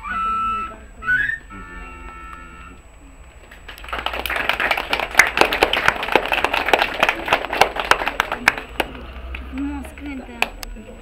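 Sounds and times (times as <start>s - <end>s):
children applauding: 3.6s - 9.7s.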